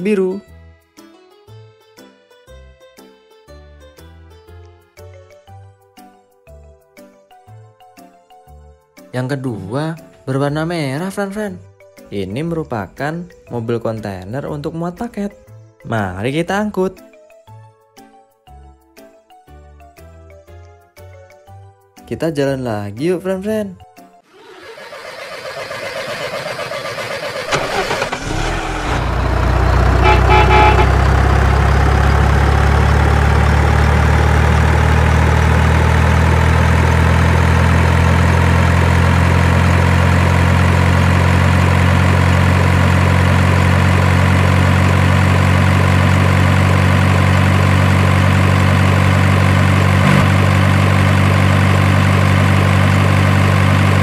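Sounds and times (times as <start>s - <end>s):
truck engine droning: 24.3s - 54.0s
horn toot: 30.0s - 31.1s.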